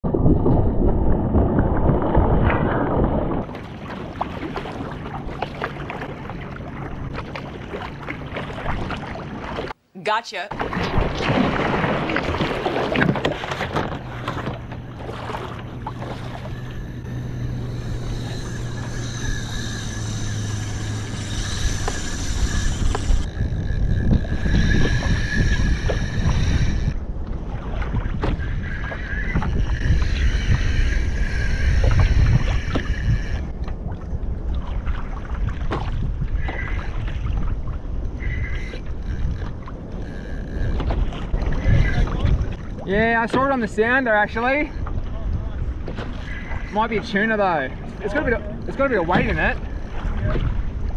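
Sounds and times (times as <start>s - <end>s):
water sloshing against kayak hull: 0.1s - 9.8s, 10.5s - 50.9s
fishing reel drag screaming: 15.0s - 27.0s, 28.4s - 33.6s, 38.1s - 40.8s, 41.5s - 42.4s, 46.1s - 50.2s.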